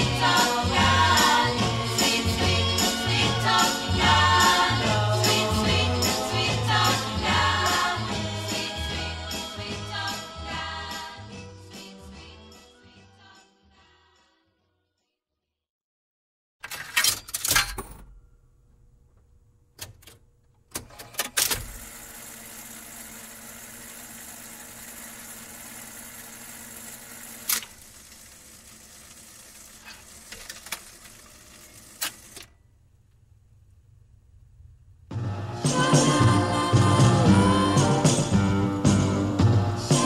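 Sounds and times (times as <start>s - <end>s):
jukebox mechanism clunks: 16.6s - 18.4s, 19.8s - 21.9s.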